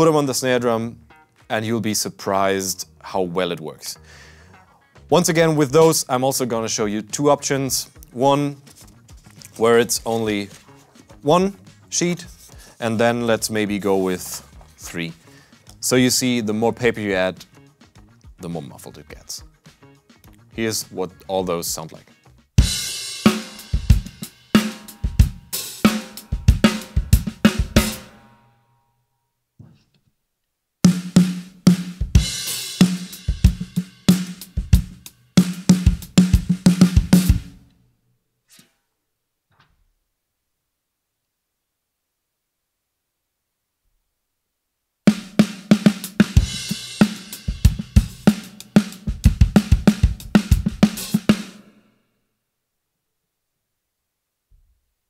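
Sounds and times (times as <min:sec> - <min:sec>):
drum kit groove: 0:04.6 - 0:28.4, 0:30.8 - 0:37.6, 0:45.1 - 0:51.8
muffled snare drum: 0:22.6 - 0:28.2, 0:30.9 - 0:37.6, 0:45.1 - 0:51.7
cymbals: 0:22.6 - 0:28.4, 0:32.1 - 0:37.6, 0:45.1 - 0:51.9.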